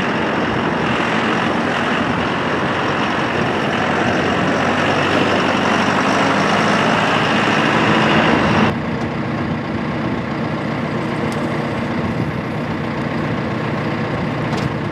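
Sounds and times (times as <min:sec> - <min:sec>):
tractor diesel engine running: 0:00.0 - 0:14.9
tyres on gravel: 0:10.0 - 0:14.9.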